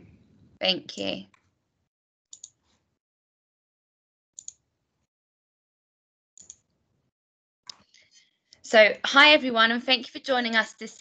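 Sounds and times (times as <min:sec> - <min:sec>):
computer mouse clicks: 0:02.3 - 0:02.8, 0:04.4 - 0:04.6, 0:06.4 - 0:06.7.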